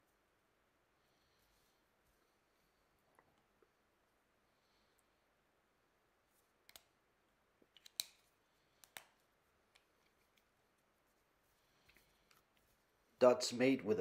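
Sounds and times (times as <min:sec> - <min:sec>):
marker pen cap clicks: 0:07.8 - 0:08.2, 0:08.8 - 0:09.1.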